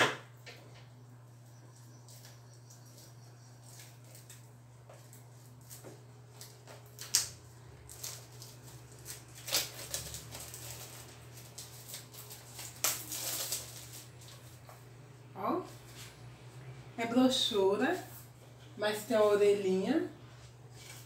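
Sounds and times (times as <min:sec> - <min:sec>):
plastic wrapping crinkling: 0:03.6 - 0:14.8.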